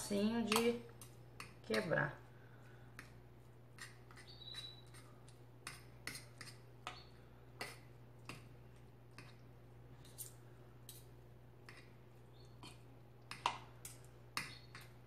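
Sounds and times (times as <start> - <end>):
fork scraping ceramic plate: 3.0 - 8.4.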